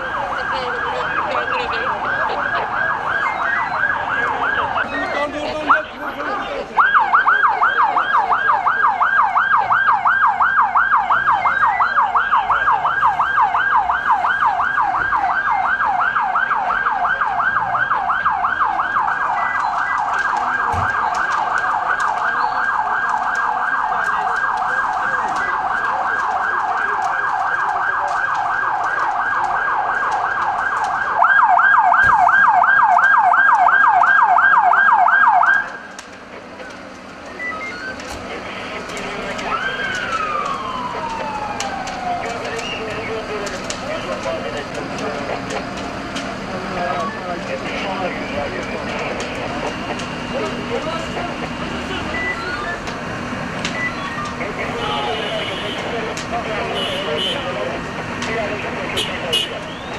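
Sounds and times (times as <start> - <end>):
electronic siren yelping: 0.0 - 6.0, 6.8 - 35.8, 37.2 - 38.1, 38.9 - 43.3, 51.8 - 52.9, 53.6 - 55.8.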